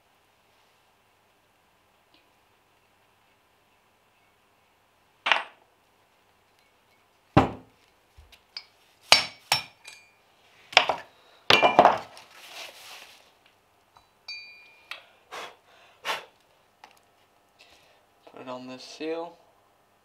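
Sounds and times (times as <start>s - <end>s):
soft cloth rustle: 12.1s - 13.4s.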